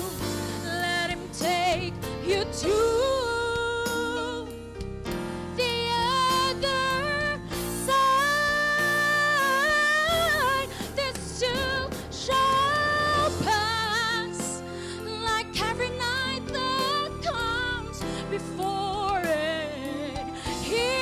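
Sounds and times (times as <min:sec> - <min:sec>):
instrumental accompaniment: 0:03.6 - 0:21.0
woman singing gospel: 0:05.6 - 0:21.0.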